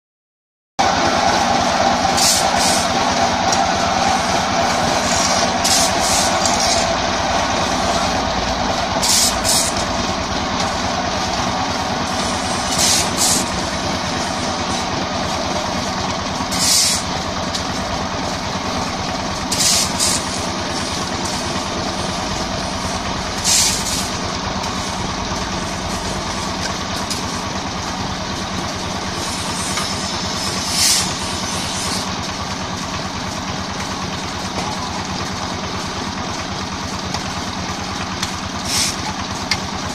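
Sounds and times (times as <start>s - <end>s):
diesel engine running: 0.8s - 39.9s
shovel scraping: 2.2s - 2.8s, 5.0s - 6.9s, 9.0s - 9.8s, 12.5s - 13.4s, 16.5s - 17.0s, 19.5s - 20.3s, 23.4s - 24.1s, 30.6s - 31.1s.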